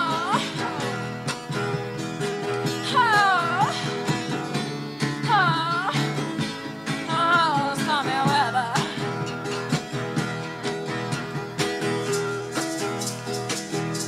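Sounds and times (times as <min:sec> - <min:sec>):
song with guitar and beat: 0:00.0 - 0:14.0.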